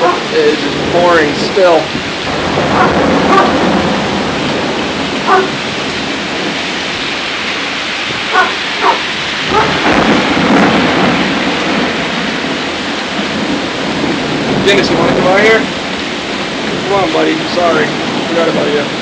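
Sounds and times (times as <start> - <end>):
heavy rain pouring: 0.0 - 19.0
low rumble of thunder: 0.0 - 19.0
dog barking: 2.8 - 3.6, 5.3 - 5.6, 8.3 - 9.8.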